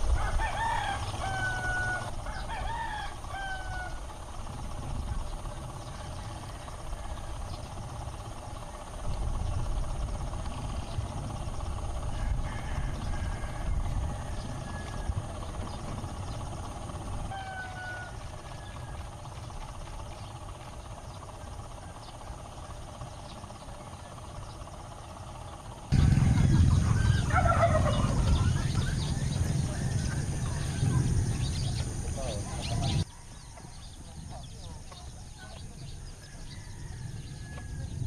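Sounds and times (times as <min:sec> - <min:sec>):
faint bird calls: 0:00.1 - 0:38.0
low volcano rumble: 0:25.9 - 0:33.1.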